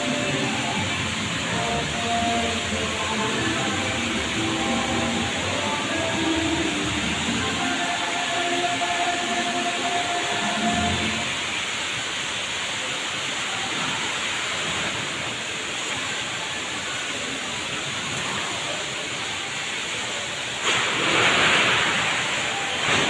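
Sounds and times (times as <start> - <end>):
rushing indoor background noise: 0.0 - 23.0
louder rush: 20.6 - 23.0.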